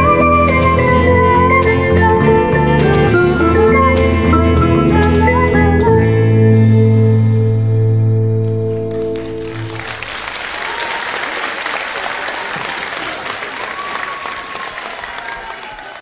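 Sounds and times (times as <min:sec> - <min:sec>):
audience applauding: 0:08.5 - 0:16.0.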